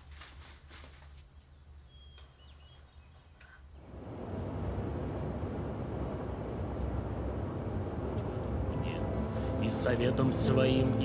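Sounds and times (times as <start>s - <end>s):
car road and engine rumble: 3.8s - 11.0s.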